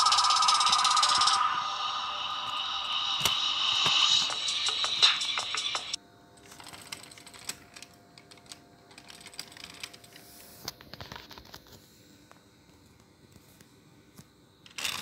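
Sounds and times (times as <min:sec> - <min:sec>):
toy car clicking over plastic bricks: 0:14.6 - 0:15.0.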